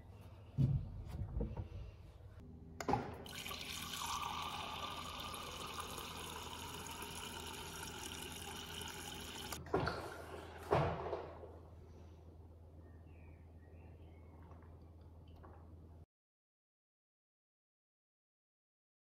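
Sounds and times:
water pouring into a glass: 0:03.3 - 0:09.6.

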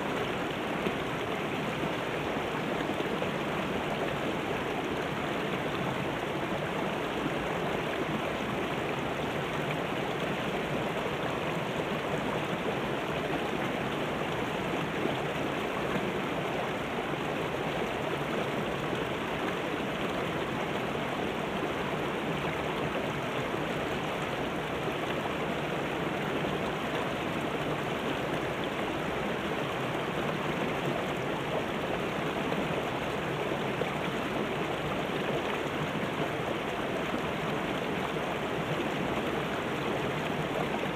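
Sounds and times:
river rushing over rocks: 0:00.0 - 0:40.9.

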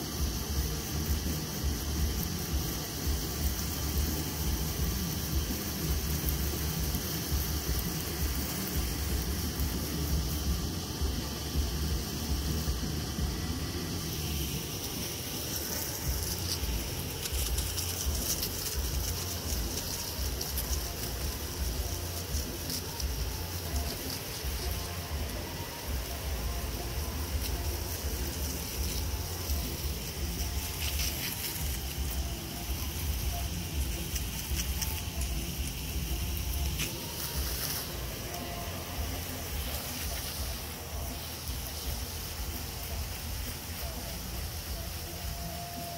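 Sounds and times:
hose spray hissing on grass: 0:00.0 - 0:45.9.

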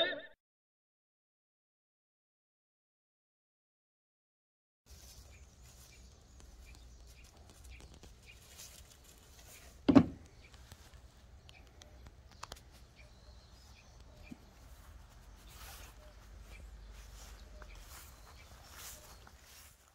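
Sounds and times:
outdoor background noise: 0:04.9 - 0:19.9
light taps on wooden deck: 0:09.8 - 0:10.6
cat landing thud on wood: 0:09.9 - 0:10.2.

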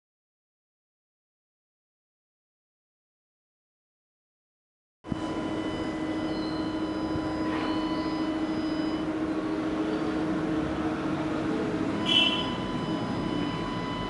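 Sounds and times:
mechanical hum: 0:05.1 - 0:14.0.

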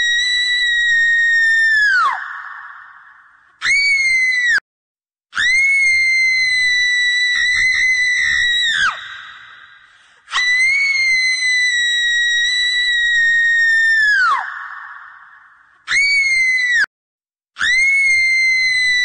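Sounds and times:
shrill screams: 0:00.0 - 0:04.6, 0:05.4 - 0:16.9, 0:17.6 - 0:19.0.

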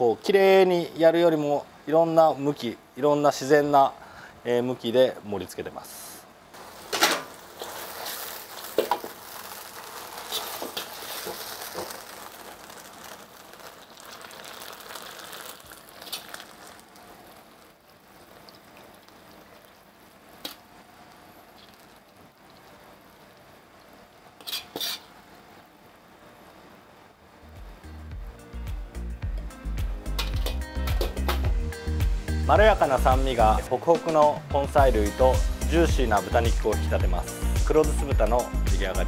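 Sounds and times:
food sizzling in a wok: 0:06.5 - 0:25.7, 0:29.6 - 0:33.0
metal utensils clinking: 0:30.2 - 0:31.3.

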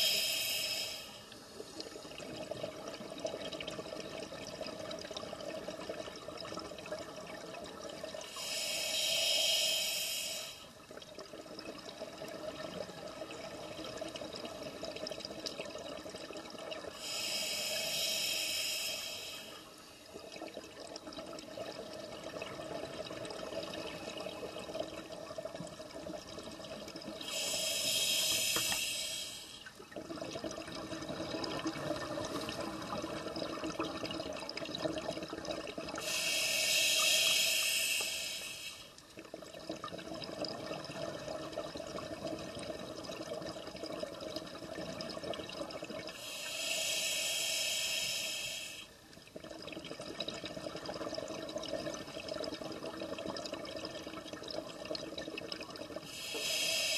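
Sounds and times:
regulator inhalation hiss: 0:00.0 - 0:01.3, 0:08.3 - 0:10.7, 0:17.0 - 0:19.7, 0:27.2 - 0:29.6, 0:36.0 - 0:38.9, 0:46.1 - 0:49.0, 0:56.1 - 0:56.9
exhaled bubbles gurgling: 0:00.0 - 0:56.9.

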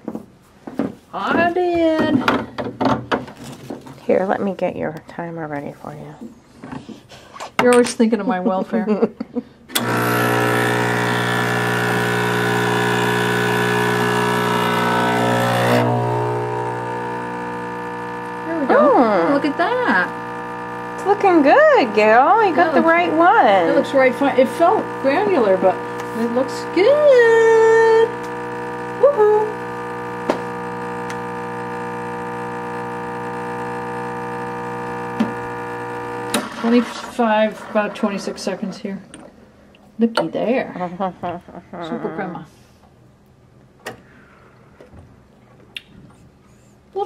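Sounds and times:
espresso pouring into glasses: 0:09.8 - 0:38.6
espresso machine pump humming: 0:09.8 - 0:38.7.

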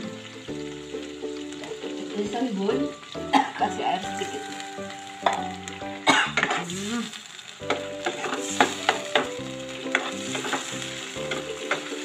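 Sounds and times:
sambal sizzling in oil: 0:00.0 - 0:12.0
soft background music: 0:00.0 - 0:12.0
spatula scraping a wok: 0:06.3 - 0:06.9, 0:07.6 - 0:12.0.

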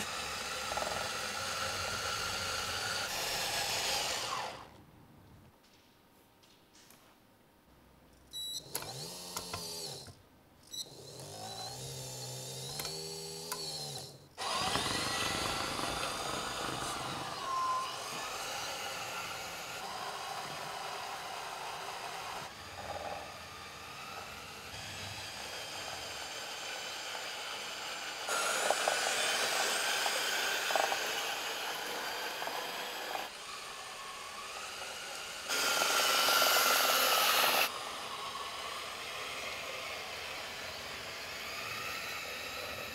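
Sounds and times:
electric motor whine: 0:08.7 - 0:10.1, 0:10.8 - 0:42.9.

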